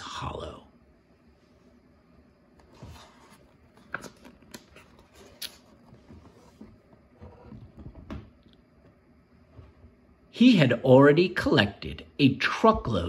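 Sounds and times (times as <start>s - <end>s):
book page turning: 2.6s - 6.9s.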